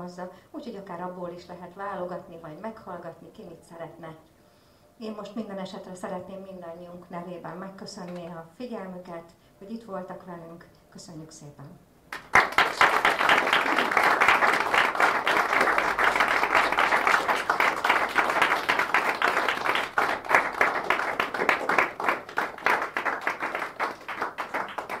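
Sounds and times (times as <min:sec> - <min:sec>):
audience applauding: 0:12.1 - 0:25.0.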